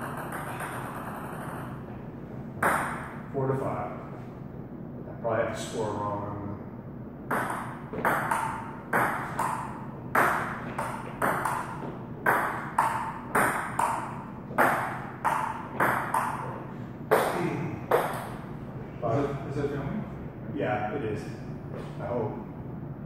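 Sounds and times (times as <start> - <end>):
table tennis ball clicks: 0.0 - 1.8, 7.3 - 18.3.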